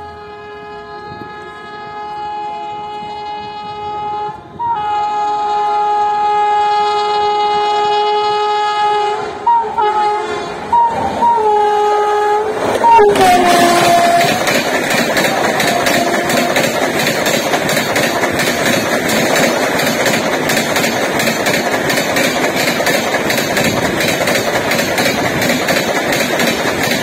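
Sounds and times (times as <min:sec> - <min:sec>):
train horn blasts: 0:00.0 - 0:17.2
passing train clatter: 0:00.0 - 0:27.0.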